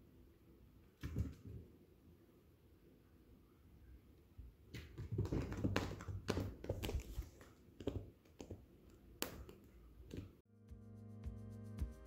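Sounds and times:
cat paws scrabbling on floor: 0:04.8 - 0:08.7.

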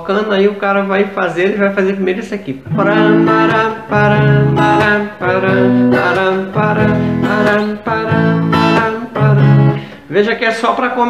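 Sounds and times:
acoustic guitar strumming: 0:02.6 - 0:10.1.

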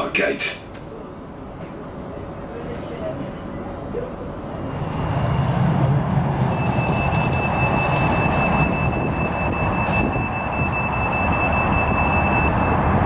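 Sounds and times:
tram rumble: 0:00.0 - 0:13.0
steady high whine: 0:04.6 - 0:13.0.

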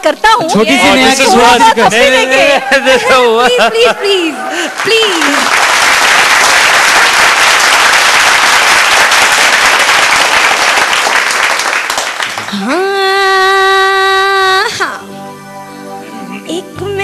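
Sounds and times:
audience applauding: 0:03.4 - 0:12.9.

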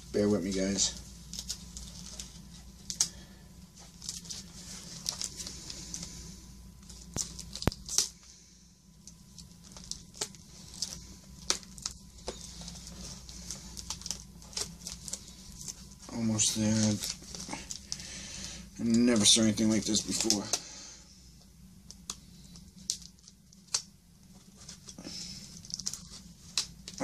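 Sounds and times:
cardboard tearing and rustling: 0:09.3 - 0:18.1, 0:24.4 - 0:27.0.

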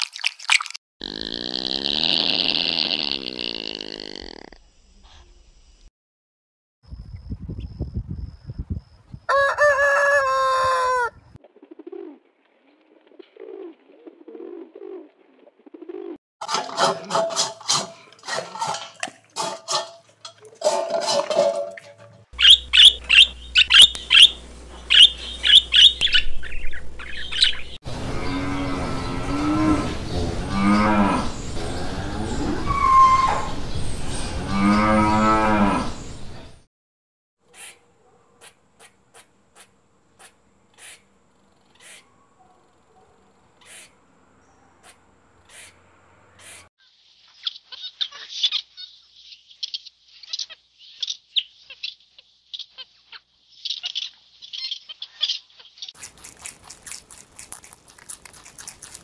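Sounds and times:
metal bowl clinking: 0:16.4 - 0:22.3.

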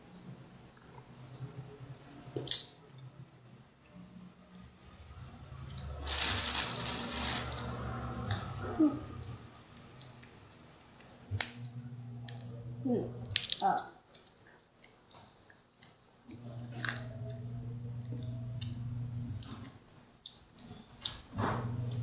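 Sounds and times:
peanut shells cracking: 0:02.4 - 0:02.7, 0:10.0 - 0:12.6, 0:13.2 - 0:14.5.

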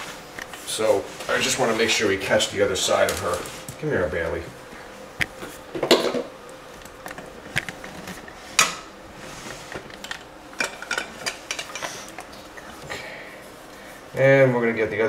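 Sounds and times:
dog shuffling on tile floor: 0:00.0 - 0:05.7.

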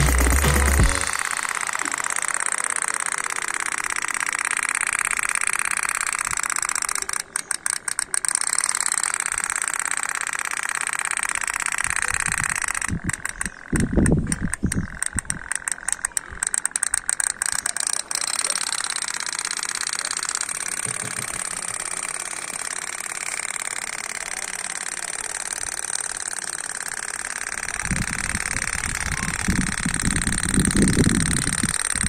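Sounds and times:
rattle of clicks: 0:00.0 - 0:32.0
small motor buzzing whine: 0:00.0 - 0:32.0.

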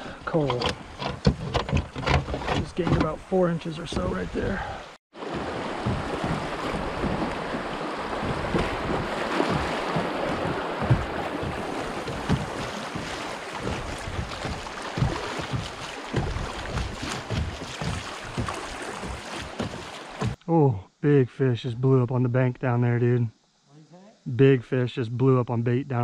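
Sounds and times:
water rushing and splashing: 0:00.0 - 0:20.4
wind buffeting microphone: 0:05.3 - 0:19.0.

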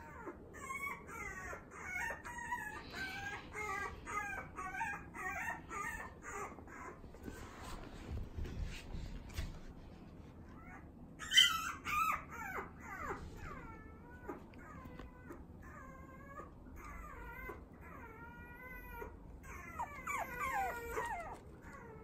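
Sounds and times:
puppy whining and whimpering: 0:00.0 - 0:08.9, 0:10.4 - 0:22.0.

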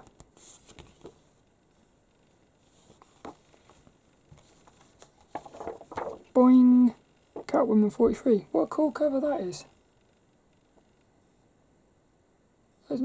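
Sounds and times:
paper rustling: 0:00.0 - 0:01.4, 0:02.6 - 0:06.4.

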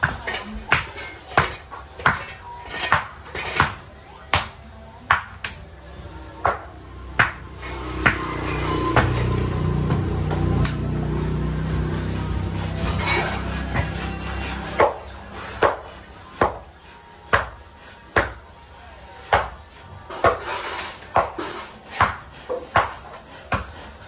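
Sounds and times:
tool striking wood: 0:13.6 - 0:16.6, 0:19.3 - 0:23.9.

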